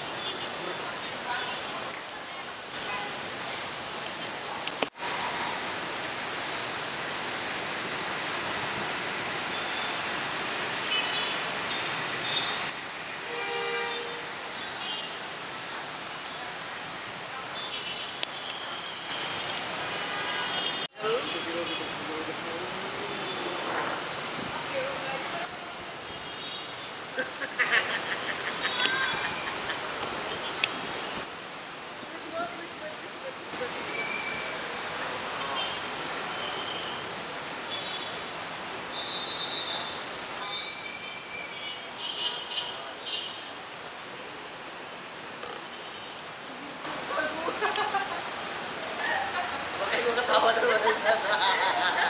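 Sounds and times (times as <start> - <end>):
city street traffic hum: 0.0 - 52.0
vehicle horn: 13.2 - 15.2.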